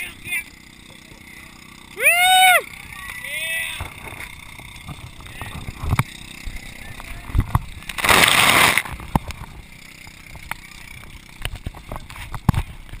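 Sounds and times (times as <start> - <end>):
camera knocking and rubbing: 11.5 - 13.0.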